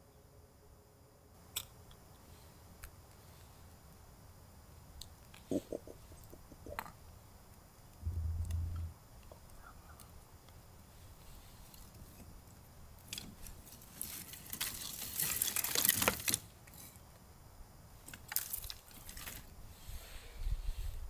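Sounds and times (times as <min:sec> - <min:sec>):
dry twigs crackling and snapping: 0:13.1 - 0:16.4, 0:18.1 - 0:19.5.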